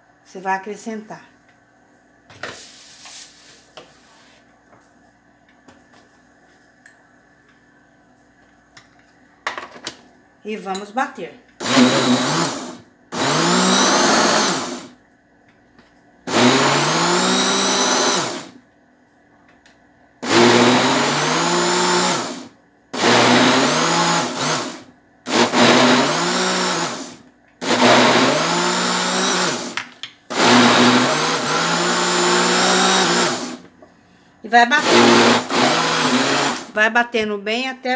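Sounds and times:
electric blender pulsing: 11.6 - 15.0, 16.3 - 18.6, 20.2 - 33.7, 34.7 - 36.8.

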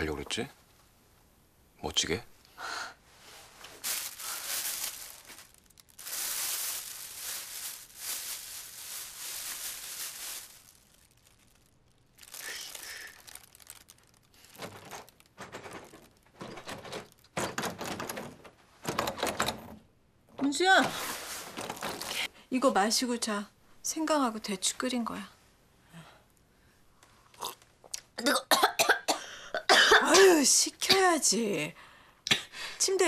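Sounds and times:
plastic bag crinkling: 3.6 - 18.3, 20.6 - 22.3.

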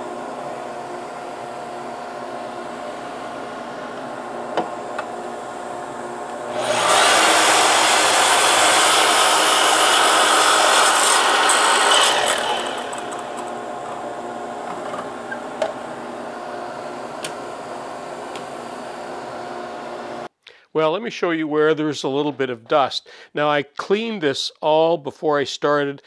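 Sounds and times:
dust collector running: 0.0 - 20.3
mitre saw cutting wood: 6.5 - 13.8.

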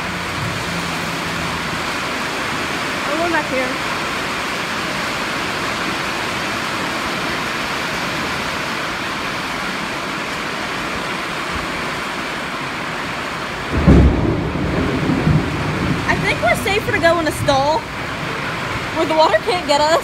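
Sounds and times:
thunder rumble: 0.0 - 4.5, 13.6 - 20.0
heavy rain pouring: 0.0 - 20.0.

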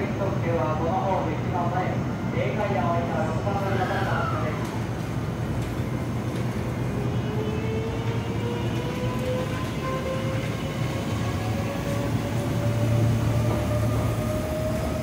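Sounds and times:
train traction motors whining: 3.6 - 15.0.

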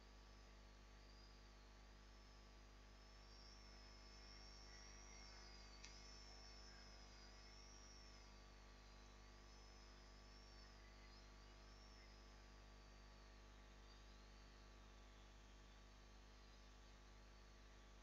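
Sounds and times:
faint high whine: 0.0 - 18.0
faint steady hum: 0.0 - 18.0
small click: 5.8 - 6.1.

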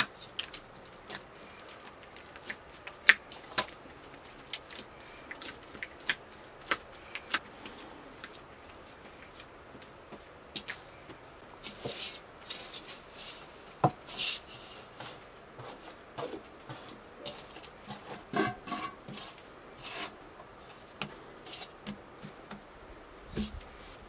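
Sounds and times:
hands kneading dough on board: 0.0 - 24.0
metal bowl scraping board: 14.1 - 20.8.

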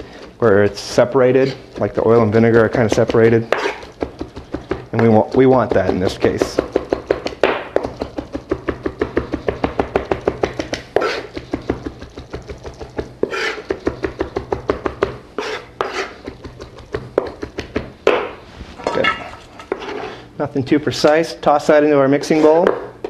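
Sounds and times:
knife chopping on cutting board: 0.2 - 18.4.

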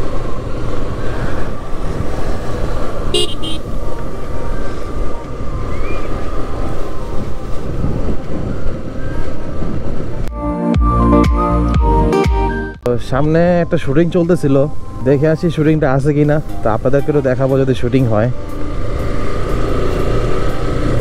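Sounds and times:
motorcycle horn toots: 3.1 - 3.7
wind rumble on microphone: 4.5 - 10.3.

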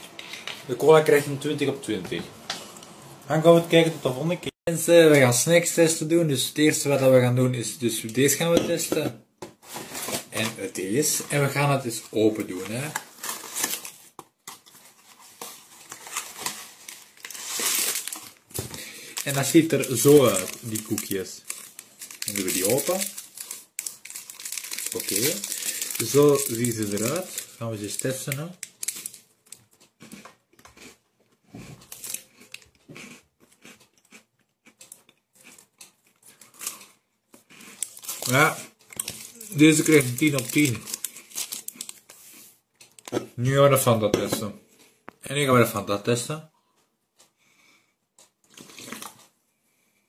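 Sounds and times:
cookie packaging crinkling: 9.7 - 30.9, 31.8 - 43.1.

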